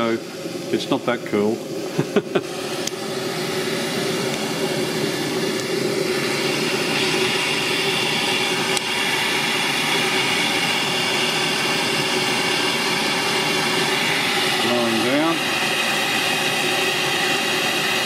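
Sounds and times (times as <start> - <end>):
steam hiss: 0.0 - 18.0
steam pump running: 0.0 - 18.0.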